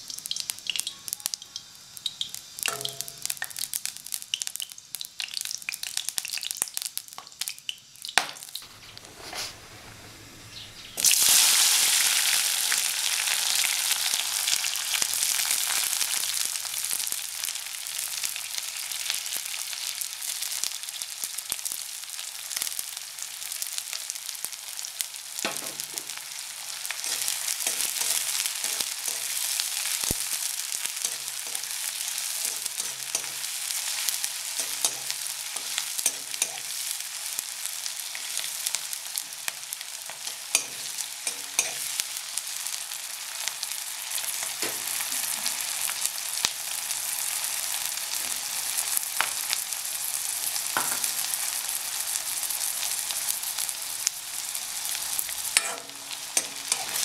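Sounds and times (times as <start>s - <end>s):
onions sizzling in hot oil: 0.0s - 9.5s, 10.4s - 57.0s
metal spatula scraping a pan: 27.0s - 29.6s, 31.0s - 36.7s, 40.1s - 42.0s, 55.6s - 57.0s.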